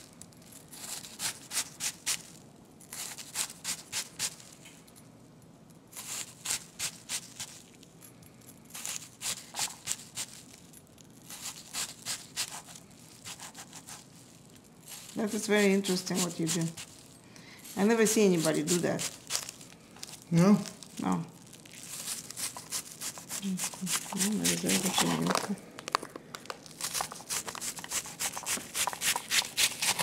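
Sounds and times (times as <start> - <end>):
knife slicing onion on board: 0.8 - 2.2, 2.9 - 4.4, 11.3 - 14.0, 15.6 - 16.9, 18.4 - 19.5, 22.0 - 25.1, 26.8 - 30.0.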